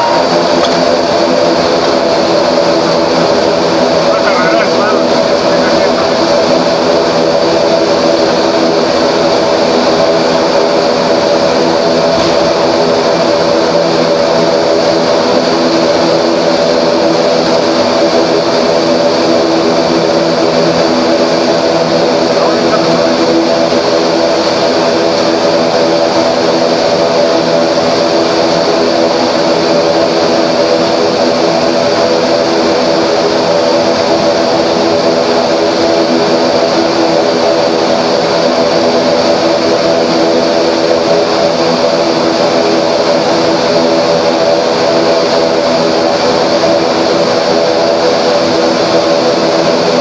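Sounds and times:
turboprop engines droning: 0.0s - 50.0s.

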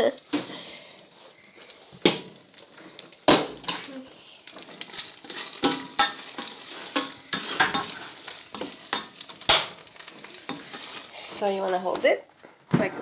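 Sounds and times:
sauce sizzling: 0.0s - 12.4s
utensil scraping and knocking pan: 4.6s - 12.0s.

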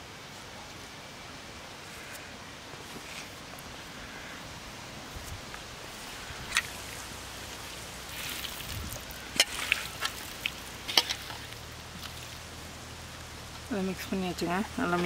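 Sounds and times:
background hiss: 0.0s - 15.0s
wet squishing of hands mixing: 6.0s - 12.6s.

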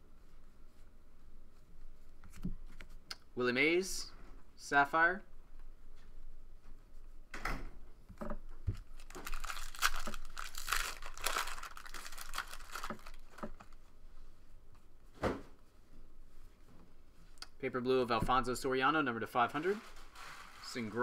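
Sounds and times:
foil wrapper tearing and crinkling: 8.8s - 13.7s.

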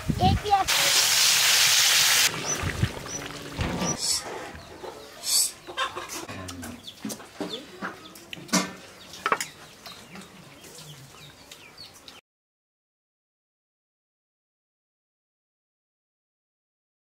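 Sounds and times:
chickens clucking: 2.3s - 12.2s.

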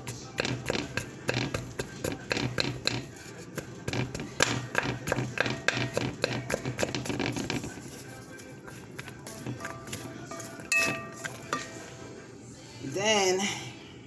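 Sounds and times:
wooden spatula scraping a pot: 0.0s - 11.9s.

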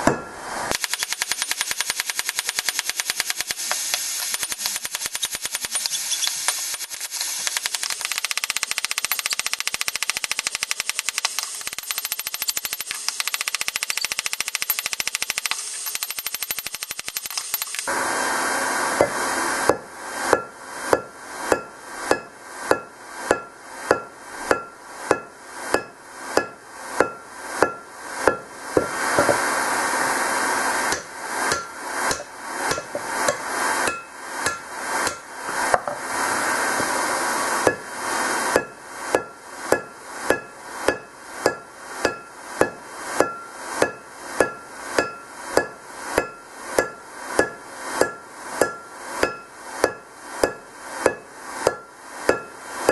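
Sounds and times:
hammer striking ringing anvil: 0.0s - 0.4s, 19.7s - 29.4s, 30.9s - 35.2s, 38.5s - 52.9s.

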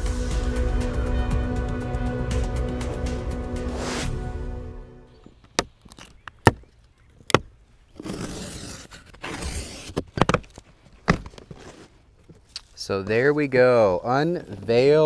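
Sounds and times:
packaging scraping and rustling: 7.9s - 12.5s.

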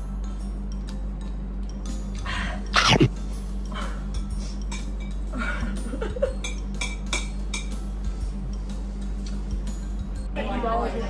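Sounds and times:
cutlery clinking on ceramic plates: 6.4s - 7.8s.

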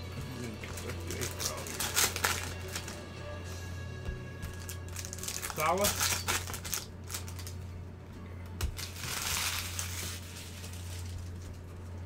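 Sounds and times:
low electrical hum: 0.0s - 12.0s
foil wrapper crinkling: 0.6s - 3.0s, 4.5s - 7.6s, 8.6s - 12.0s.

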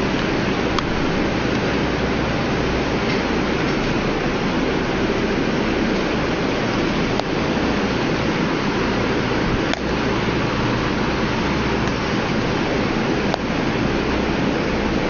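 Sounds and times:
steady rushing noise: 0.0s - 15.0s.

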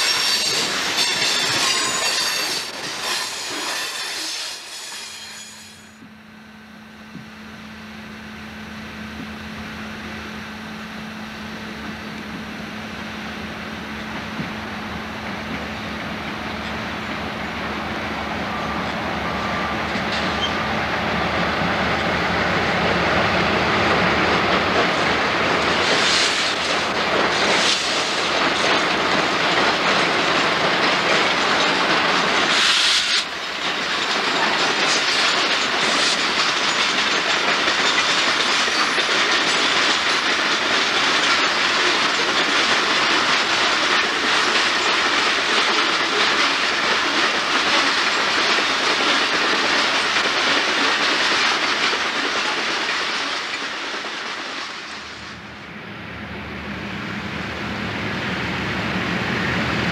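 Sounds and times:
train wheels clicking over rail joints: 0.0s - 6.2s, 13.9s - 17.6s, 19.7s - 55.5s
diesel locomotives running: 0.0s - 59.9s
short bursts of hiss: 32.5s - 33.2s.

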